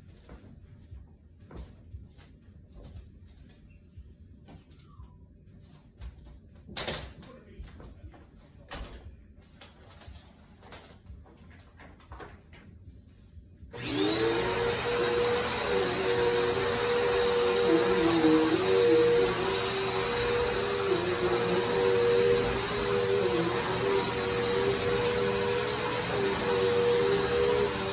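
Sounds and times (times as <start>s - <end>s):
vacuum cleaner motor whining: 13.8s - 27.9s.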